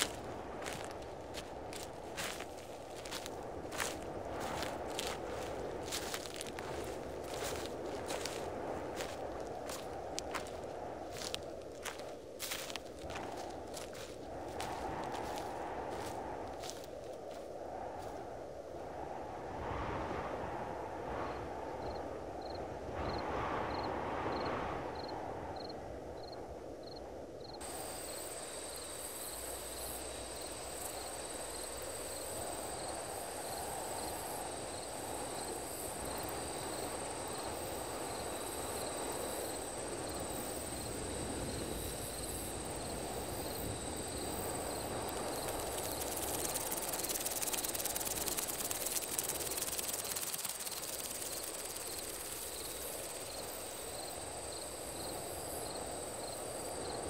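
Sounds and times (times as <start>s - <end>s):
crickets chirping: 0.0s - 57.0s
high hiss: 27.6s - 56.7s.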